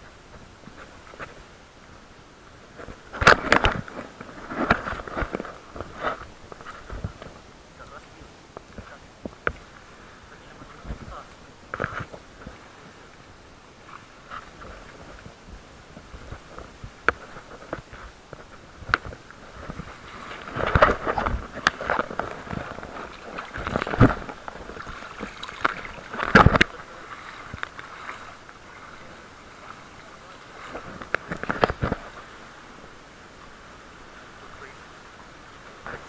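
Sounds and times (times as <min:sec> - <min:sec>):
faint wash of sea water: 0:00.0 - 0:36.0.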